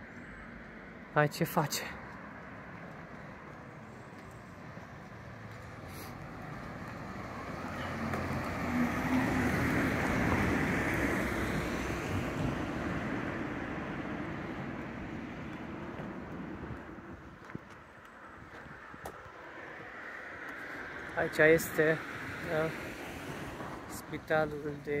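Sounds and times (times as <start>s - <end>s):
car driving past: 5.1s - 16.4s.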